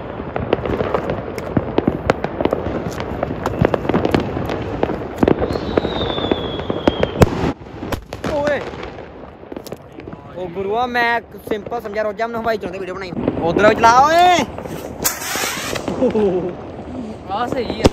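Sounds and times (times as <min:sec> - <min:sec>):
firecrackers popping: 0:00.0 - 0:17.9
falling firework whistle: 0:03.4 - 0:04.2, 0:05.2 - 0:07.3, 0:14.6 - 0:16.1
loud firework bang: 0:13.1 - 0:16.2.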